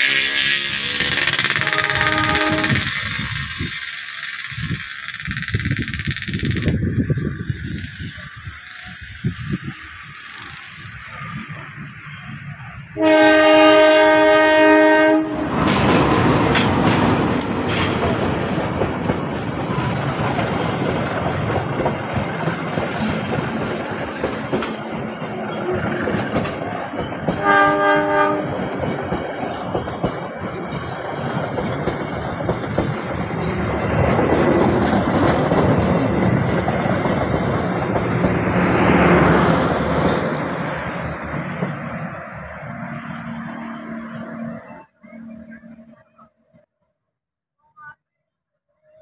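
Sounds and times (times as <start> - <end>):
locomotive horn: 0.0 - 3.1, 13.0 - 15.8, 27.3 - 28.6
train wheels clacking on rails: 0.0 - 9.0, 15.4 - 44.1.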